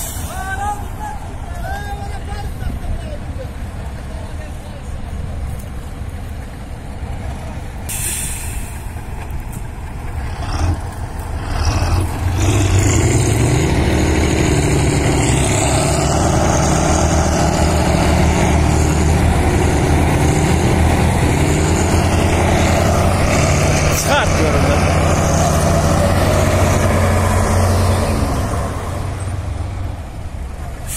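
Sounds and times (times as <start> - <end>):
tractor diesel engine running: 0.0 - 30.9
air hiss: 7.9 - 9.0.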